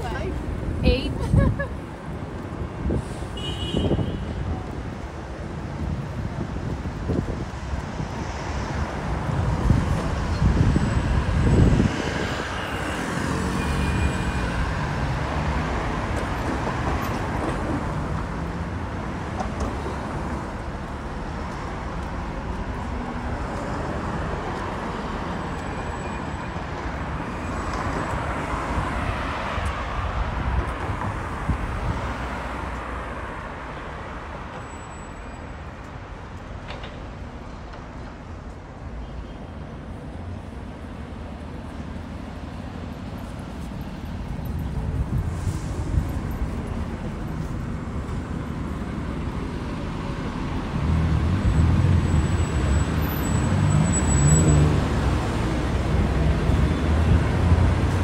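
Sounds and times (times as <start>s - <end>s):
cars passing on city street: 0.0s - 58.0s.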